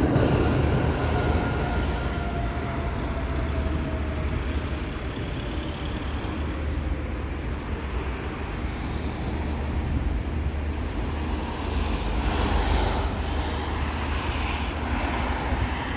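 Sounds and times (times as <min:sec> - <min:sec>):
traffic hiss: 0:04.4 - 0:15.9.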